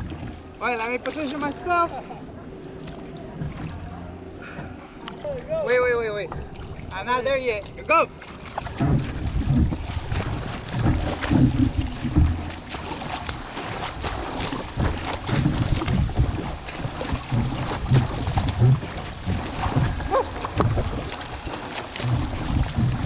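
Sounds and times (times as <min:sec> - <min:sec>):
paddle strokes splashing water: 0:00.0 - 0:23.0
wind buffeting microphone: 0:08.6 - 0:23.0.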